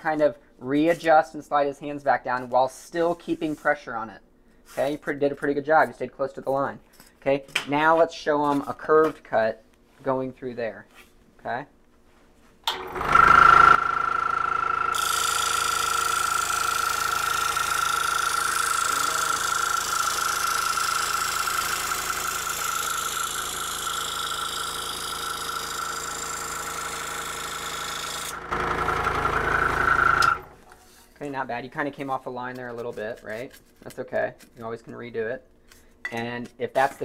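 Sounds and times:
scroll saw whining: 12.7s - 30.8s.

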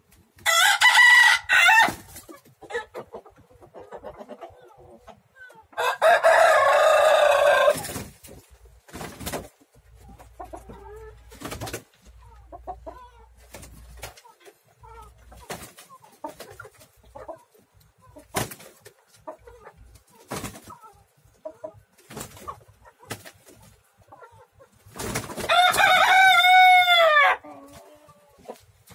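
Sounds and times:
rooster crowing: 0.4s - 2.0s, 5.8s - 7.8s, 25.5s - 27.4s.

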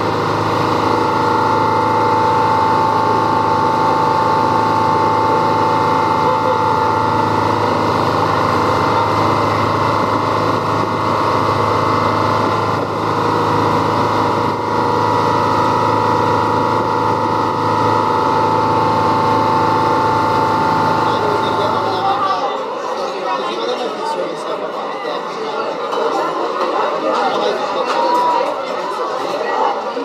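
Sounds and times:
boat engine running: 0.0s - 22.6s
high whine: 0.0s - 22.6s.

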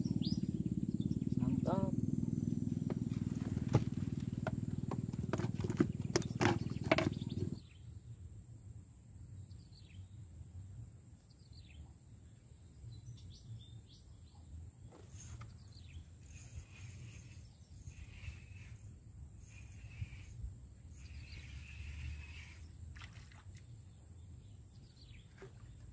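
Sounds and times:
birds chirping: 0.0s - 7.8s
faint low hum: 0.0s - 25.9s.

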